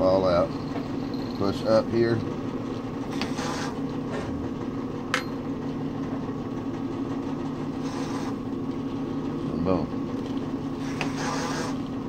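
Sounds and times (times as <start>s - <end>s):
motor hum: 0.0s - 12.0s
metal scraping: 7.7s - 8.4s, 10.7s - 11.8s.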